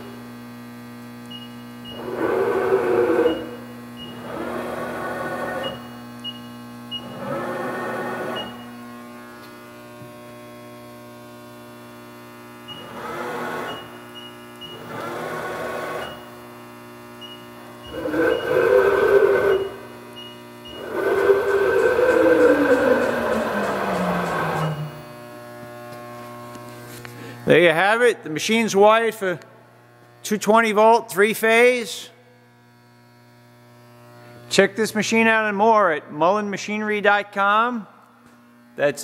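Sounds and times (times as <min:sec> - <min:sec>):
electrical hum: 0:00.0 - 0:39.0
servo motor whine: 0:01.9 - 0:06.1, 0:07.0 - 0:09.4, 0:12.7 - 0:16.4, 0:17.6 - 0:20.0, 0:20.7 - 0:27.5.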